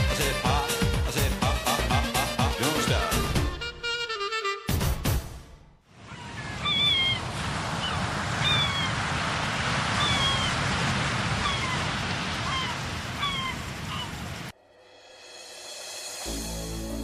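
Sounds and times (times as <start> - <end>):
surf washing: 5.9 - 14.6
seagulls crying: 6.0 - 9.0, 10.0 - 10.7, 11.3 - 14.4.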